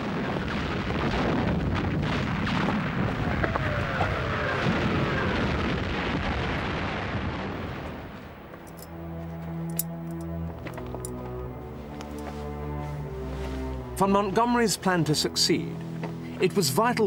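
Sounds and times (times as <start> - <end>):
artillery gunfire and explosions: 0.0 - 8.1.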